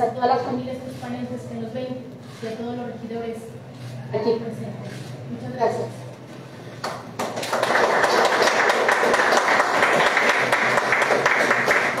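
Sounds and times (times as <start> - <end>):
people clapping: 6.8 - 12.0.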